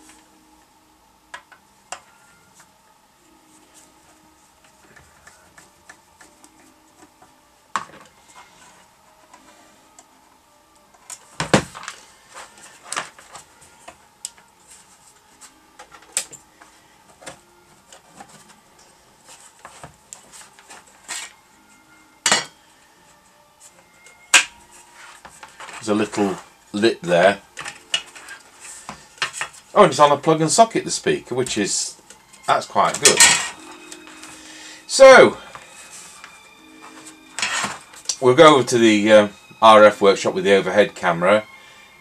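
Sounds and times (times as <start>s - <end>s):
faint background music: 0.0s - 42.0s.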